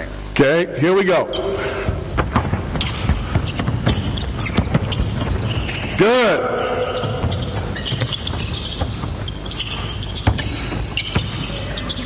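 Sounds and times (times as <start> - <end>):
sneakers squeaking: 1.0 - 12.0
basketball bouncing: 1.3 - 12.0.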